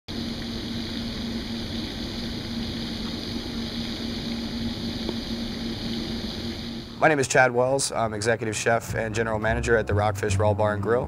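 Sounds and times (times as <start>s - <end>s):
fountain splashing water: 0.1s - 7.0s
low hum: 0.1s - 11.0s.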